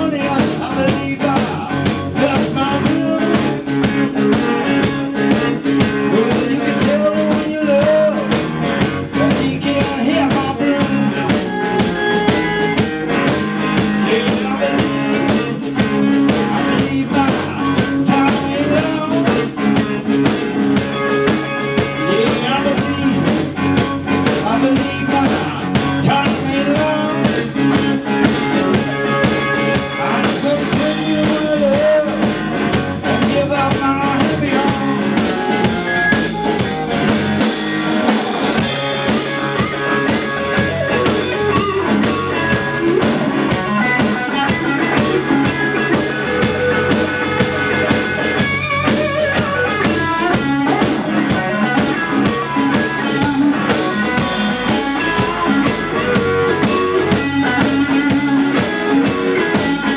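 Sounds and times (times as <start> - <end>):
bass guitar: 0.0 - 59.9
drum kit: 0.0 - 59.9
electric guitar: 0.0 - 59.9.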